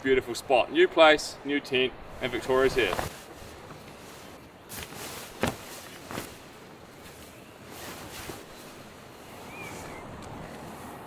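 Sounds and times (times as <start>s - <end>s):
tent fabric rustling: 2.1s - 11.0s
footsteps on grass: 2.3s - 8.8s.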